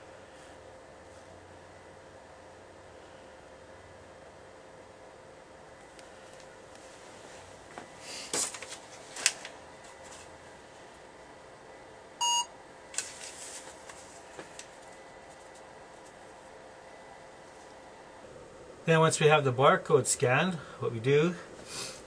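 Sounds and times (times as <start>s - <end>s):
short electronic beep: 12.2s - 12.5s.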